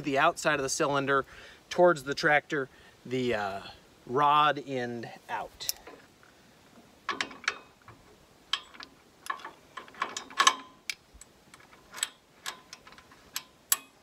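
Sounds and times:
metallic clicks and clinks: 0:08.5 - 0:14.0.

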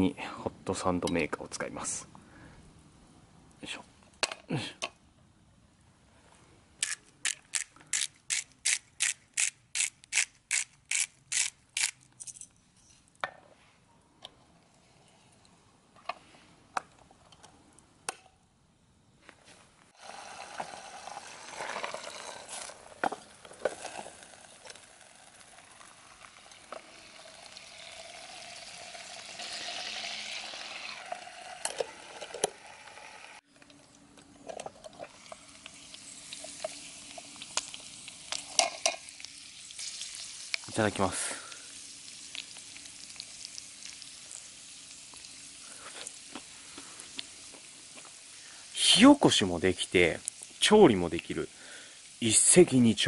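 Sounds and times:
food sizzling: 0:19.9 - 0:33.5, 0:34.8 - 0:53.0.

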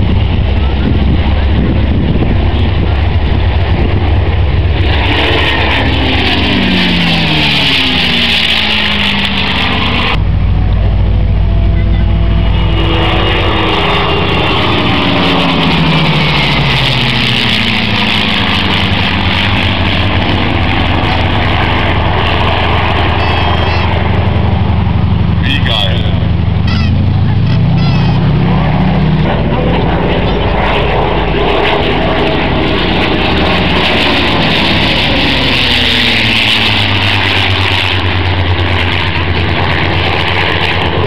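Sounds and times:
piston aircraft engines droning past: 0:00.0 - 0:41.0.

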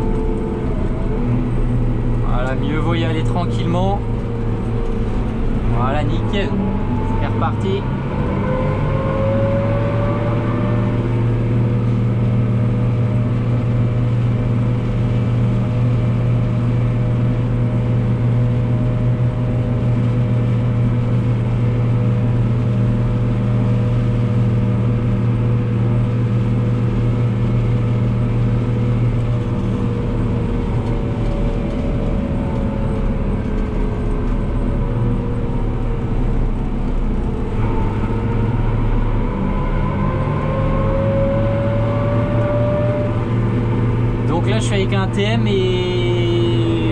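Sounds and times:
tractor diesel engine running: 0:00.0 - 0:08.9, 0:10.4 - 0:46.9
steady whine: 0:00.0 - 0:46.9.

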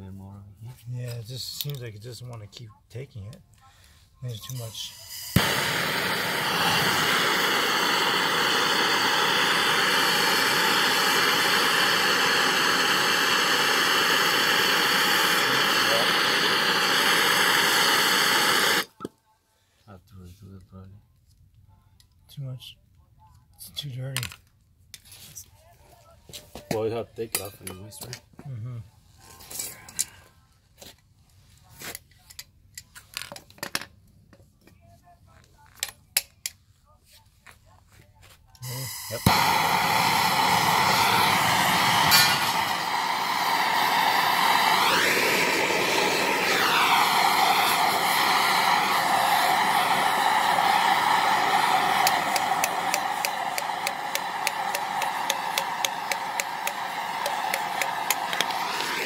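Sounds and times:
gas torch hissing: 0:04.3 - 0:19.0, 0:38.6 - 0:59.0.

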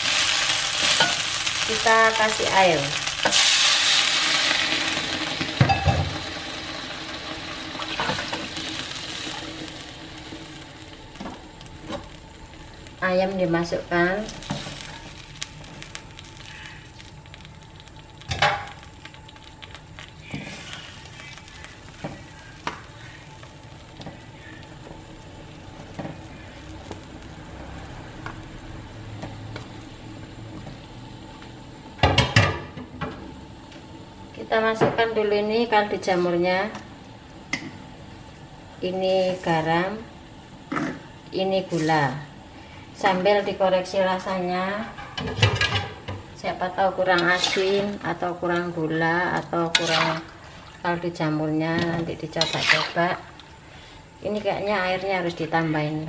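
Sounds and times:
paste sizzling in a wok: 0:00.0 - 0:31.3, 0:37.8 - 0:40.4, 0:46.3 - 0:55.6
broth heating with low hiss: 0:00.0 - 0:56.0
kitchenware clattering: 0:45.0 - 0:46.1.

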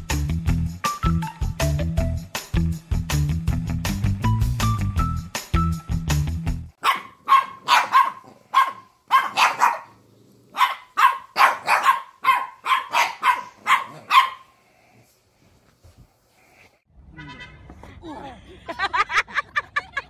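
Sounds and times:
dogs barking: 0:06.8 - 0:14.5.

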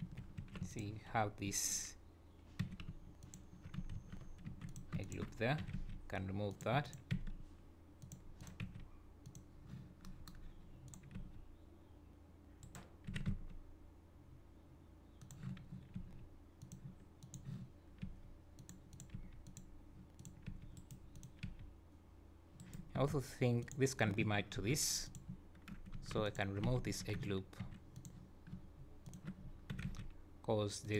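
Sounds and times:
steady low hum: 0:00.0 - 0:30.9
keyboard and mouse clicks: 0:02.6 - 0:07.4, 0:08.0 - 0:11.4, 0:12.6 - 0:13.6, 0:15.2 - 0:21.7, 0:22.6 - 0:22.9, 0:25.1 - 0:30.1.

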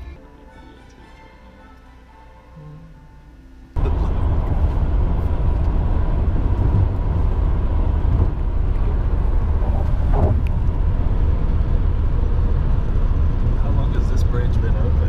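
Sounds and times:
tyre and engine rumble: 0:03.8 - 0:15.0.

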